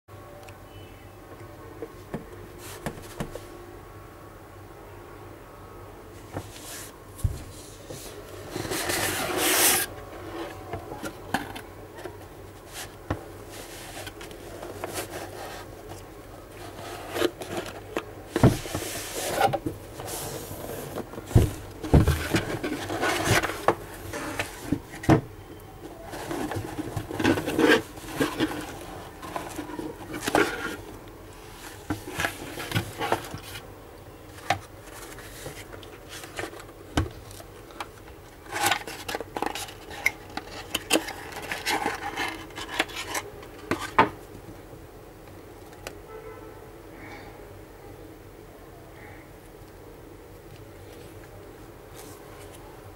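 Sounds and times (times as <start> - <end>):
cardboard box rubbing and scraping: 7.5 - 10.6, 12.7 - 15.8, 18.4 - 25.0, 26.0 - 30.9.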